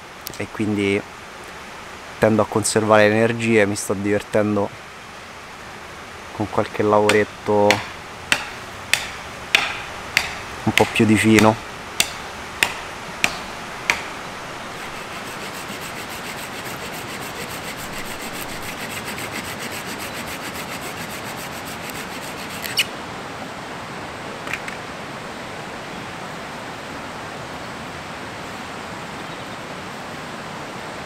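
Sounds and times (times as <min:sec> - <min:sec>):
steady hiss: 0:00.0 - 0:27.3
sharp knocks: 0:07.1 - 0:14.2
wood snapping: 0:07.1 - 0:14.2
blade rasping on wood: 0:07.7 - 0:22.9.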